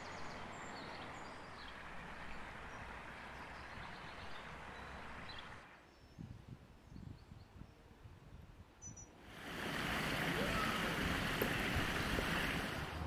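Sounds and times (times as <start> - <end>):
stream running over pebbles: 9.2 - 13.0.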